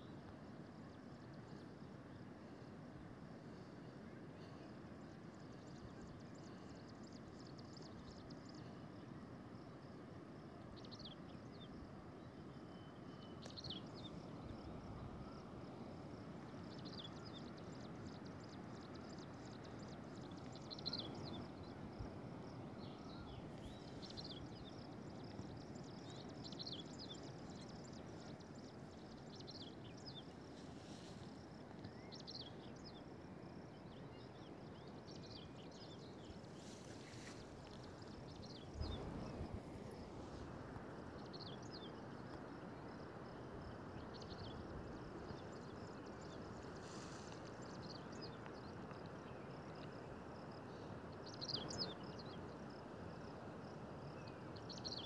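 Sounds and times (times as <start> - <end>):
small birds chirping: 12.7 - 14.6, 22.8 - 33.0, 33.9 - 40.5
low rushing hiss: 13.4 - 44.3, 45.0 - 48.8.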